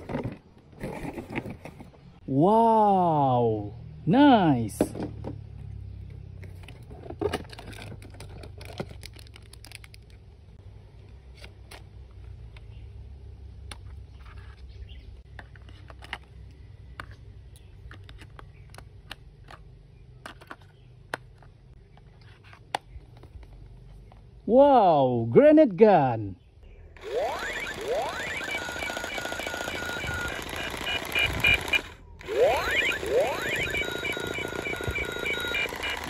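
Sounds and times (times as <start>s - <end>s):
plastic and cardboard clicks and rustles: 6.4s - 10.4s, 15.3s - 24.3s.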